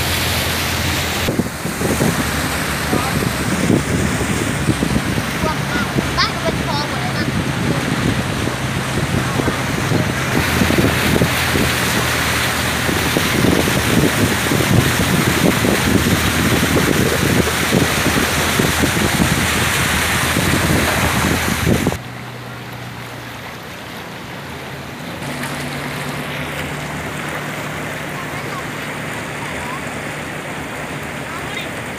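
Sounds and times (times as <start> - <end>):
floodwater flowing: 0.0 - 31.9
truck engine running: 0.0 - 31.9
water splashing from wheels: 0.0 - 31.9.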